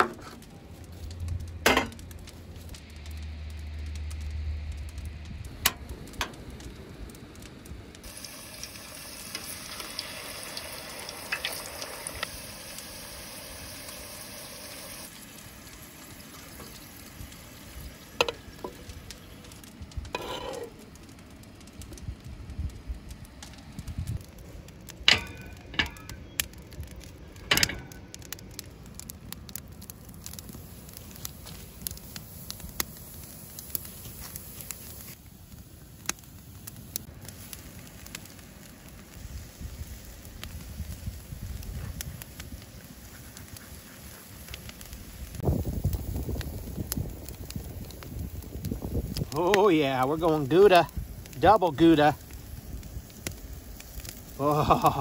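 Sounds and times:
potatoes sizzling in oil: 8.0 - 21.3, 30.2 - 55.0
metal tongs clinking cookware: 25.1 - 26.2.

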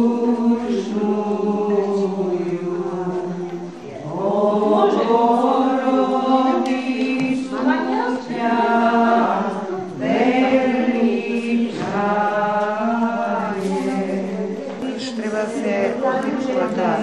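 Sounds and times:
choir singing church chant: 0.0 - 17.0.

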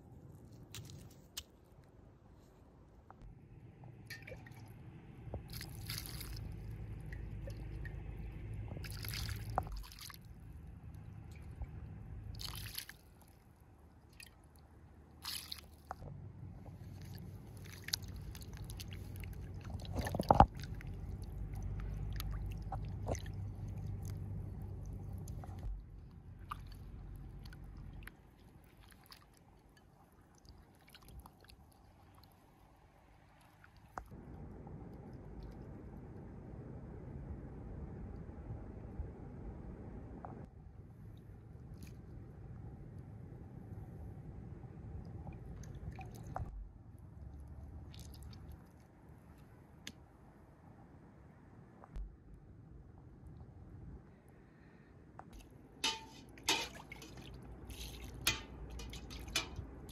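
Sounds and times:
water dripping: 4.0 - 13.4, 55.4 - 59.9
wet squelching and sloshing: 4.1 - 16.0, 16.6 - 34.2, 45.3 - 46.5, 47.4 - 49.6, 55.3 - 59.9.

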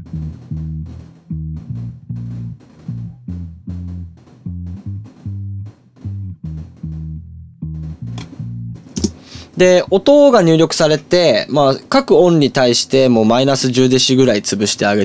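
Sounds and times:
plucked electric bass line: 0.0 - 10.7.

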